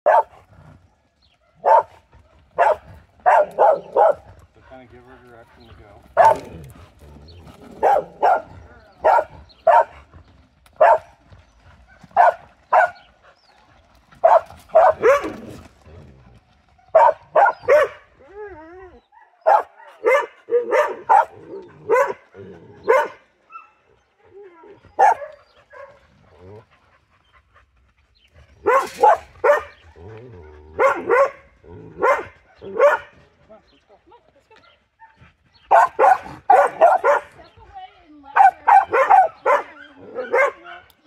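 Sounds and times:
dog barking: 0.0s - 0.4s, 1.4s - 2.0s, 2.6s - 4.3s, 6.2s - 6.5s, 7.8s - 10.0s, 10.8s - 11.1s, 12.2s - 13.0s, 14.2s - 15.4s, 16.8s - 18.0s, 19.2s - 22.2s, 22.9s - 23.8s, 25.0s - 26.0s, 28.6s - 29.8s, 30.8s - 33.2s, 35.0s - 37.4s, 38.3s - 41.0s.

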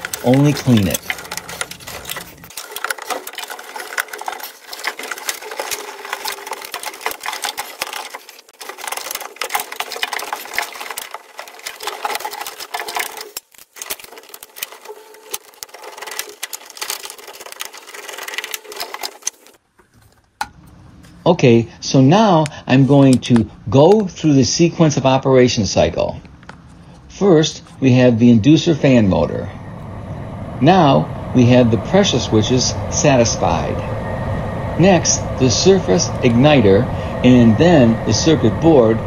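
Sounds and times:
hands rustling and clicking parts: 0.0s - 21.2s.

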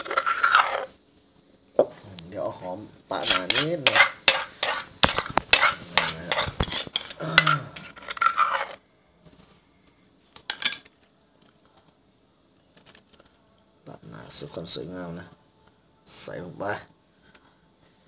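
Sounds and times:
spoon scraping mortar: 0.0s - 1.0s, 3.1s - 8.8s.

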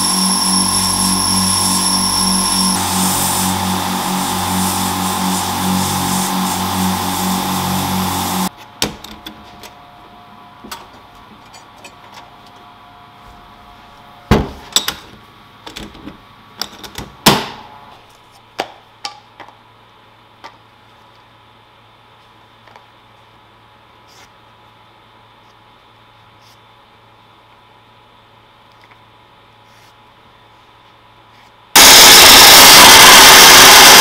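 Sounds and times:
abrasive blasting hiss: 0.0s - 8.5s.

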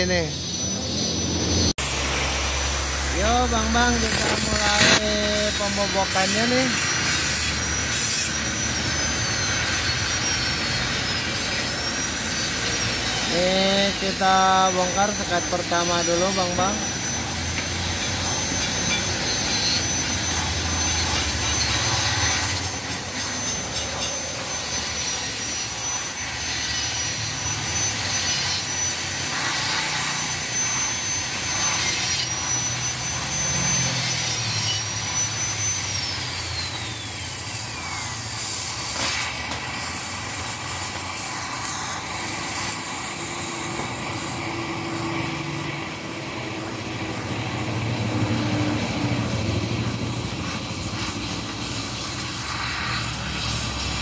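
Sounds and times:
cutting torch roaring hiss: 0.0s - 54.0s
thin high whistle: 3.0s - 44.5s.

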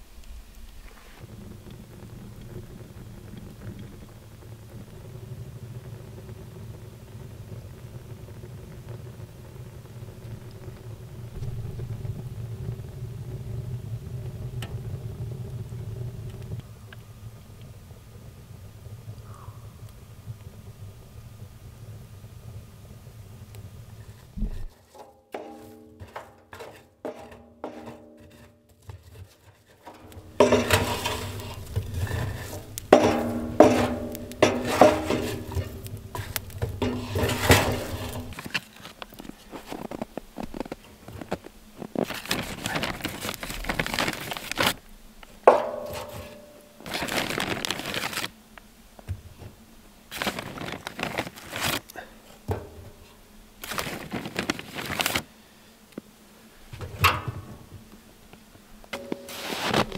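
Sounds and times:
wood rustling and clattering: 24.1s - 48.3s, 50.1s - 51.8s, 52.4s - 55.3s, 58.8s - 59.9s
metal clanks: 24.5s - 29.0s, 29.6s - 38.5s, 45.5s - 46.8s, 52.5s - 53.1s, 59.0s - 59.9s.

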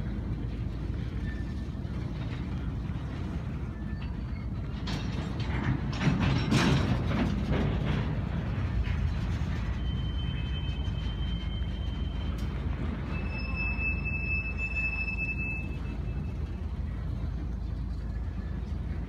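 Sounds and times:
train wheels rumbling on rail: 0.0s - 19.0s
clanks and knocks: 4.0s - 9.8s
high wheel squeal: 9.6s - 16.5s.

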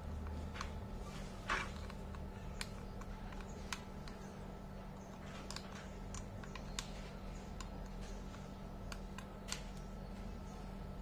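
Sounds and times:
faint low hum: 0.0s - 11.0s
plastic clicks and taps: 1.5s - 4.4s.

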